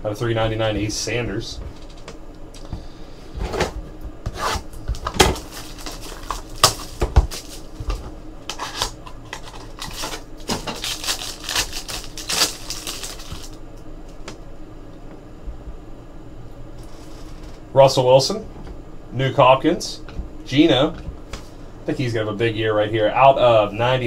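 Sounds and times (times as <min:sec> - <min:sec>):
plastic wrap crinkling: 0:04.9 - 0:13.6.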